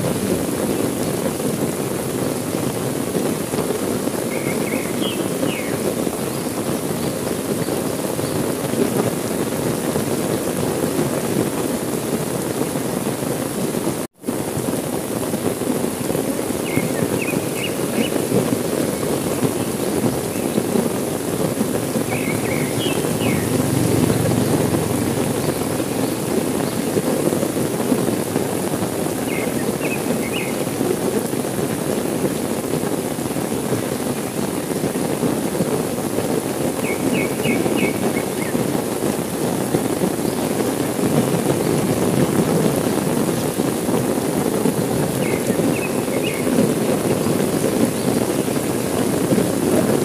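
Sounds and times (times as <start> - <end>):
heavy rain falling: 0.0 - 50.0
bird chirping: 4.3 - 5.8, 22.1 - 26.9.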